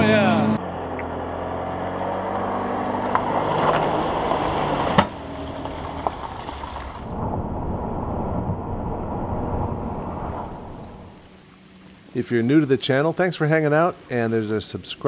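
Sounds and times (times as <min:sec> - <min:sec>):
road and wind noise: 0:00.0 - 0:12.1.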